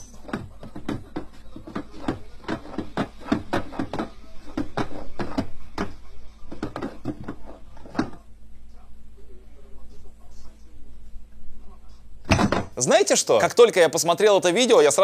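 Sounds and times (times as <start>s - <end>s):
wooden toy clacking and knocking: 0.0s - 8.2s.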